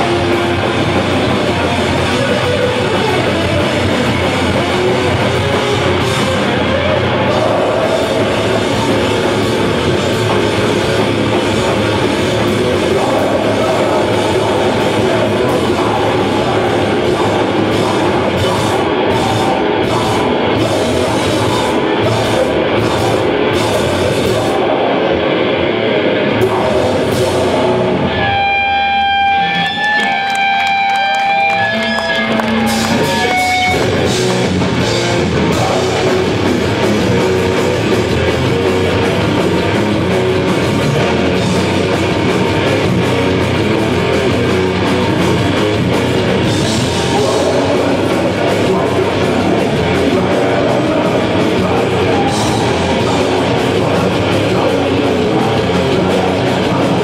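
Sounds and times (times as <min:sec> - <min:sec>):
live heavy metal band: 0:00.0 - 0:57.0
held electric guitar notes: 0:24.6 - 0:57.0.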